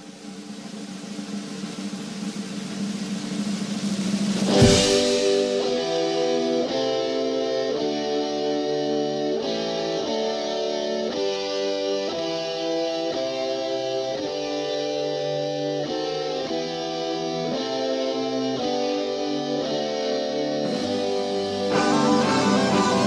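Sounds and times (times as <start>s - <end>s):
cymbal crash: 0.2s - 6.7s
rock band music: 4.3s - 23.0s.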